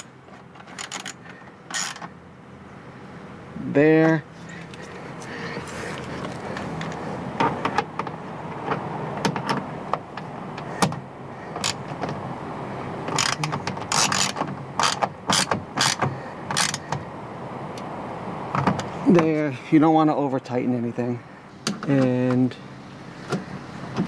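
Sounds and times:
hand tool clicking and rattling: 0.6 - 2.1, 13.1 - 16.9.

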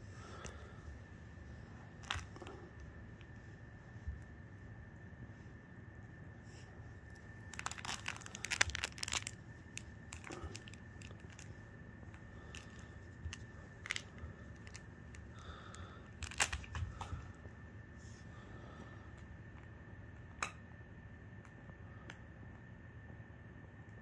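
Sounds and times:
crinkling and crunching clicks: 0.0 - 3.4, 7.0 - 17.6.

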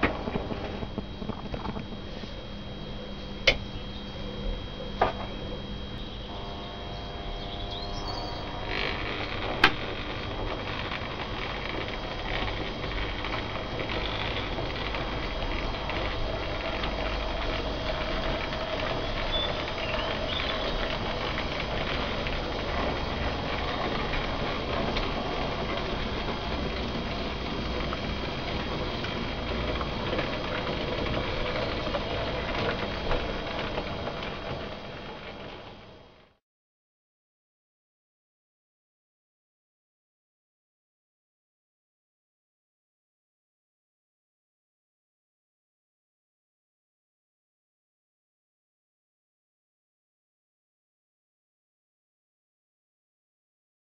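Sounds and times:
model train motors whirring and rattling: 0.0 - 36.4.

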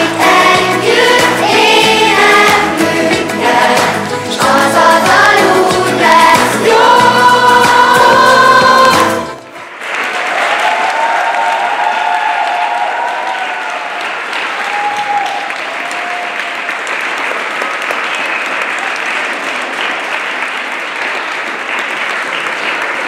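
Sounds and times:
children's choir singing: 0.0 - 9.6
audience applauding: 0.0 - 23.0.

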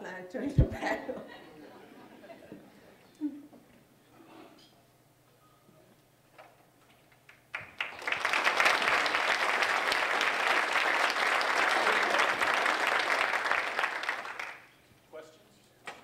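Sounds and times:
audience applauding: 7.3 - 14.8.

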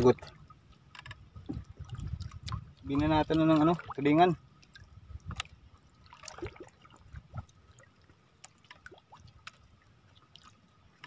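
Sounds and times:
water dripping and trickling: 0.0 - 11.0
light ticks: 0.2 - 1.3, 8.4 - 9.7
small splashes: 1.4 - 11.0.

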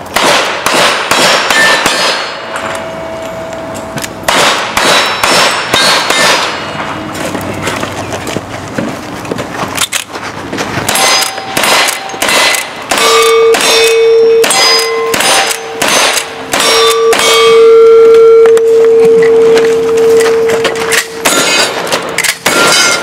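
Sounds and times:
rifle shots: 0.1 - 2.5, 4.3 - 6.8, 10.9 - 17.4, 21.1 - 23.0
steel plate target ringing: 0.2 - 7.2, 10.9 - 23.0.

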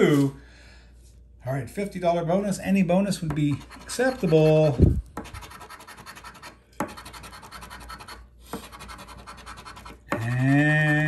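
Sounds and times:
coin scraping scratch card: 3.6 - 11.0.

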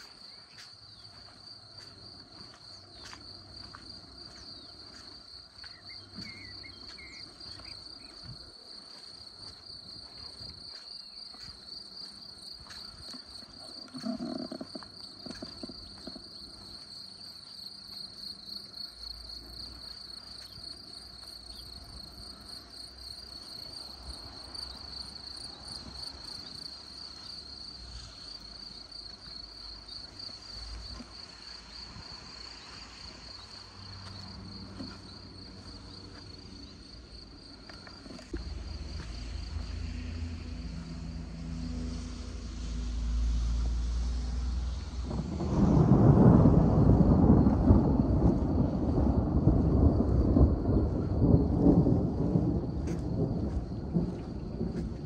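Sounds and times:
high-pitched insect trill: 0.0 - 55.0
light rain: 38.3 - 55.0.

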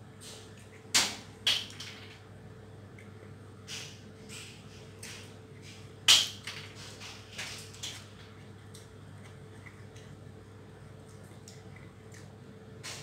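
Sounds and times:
steady low hum: 0.0 - 13.0
eating clicks and smacks: 2.9 - 5.3, 7.6 - 13.0.

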